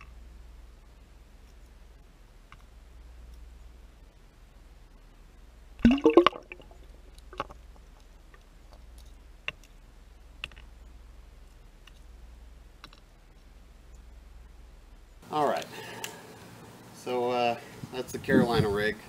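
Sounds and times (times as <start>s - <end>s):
underwater splash and gurgle: 5.8s - 6.8s.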